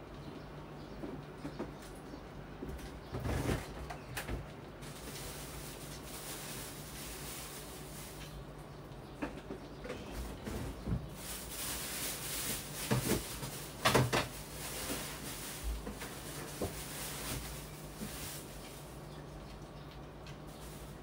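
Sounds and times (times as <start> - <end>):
objects knocking and rattling: 9.2 - 18.2.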